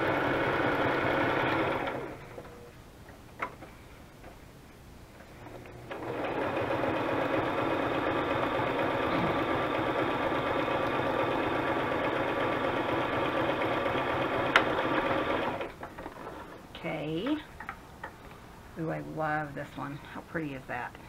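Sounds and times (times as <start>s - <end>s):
sewing machine running: 0.0s - 2.2s, 5.8s - 16.4s.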